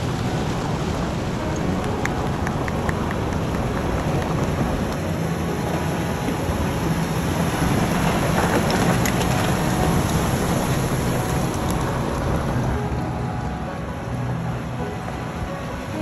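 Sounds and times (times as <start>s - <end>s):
river water rushing over rocks: 0.0s - 16.0s.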